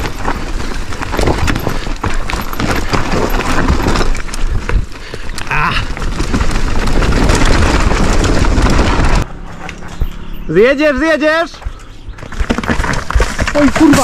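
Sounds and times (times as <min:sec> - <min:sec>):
bike clattering over stones: 0:00.0 - 0:14.0.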